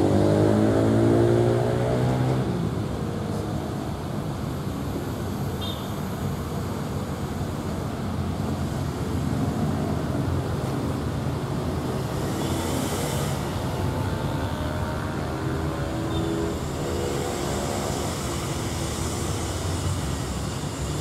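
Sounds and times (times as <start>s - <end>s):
train rumbling: 15.6s - 21.0s.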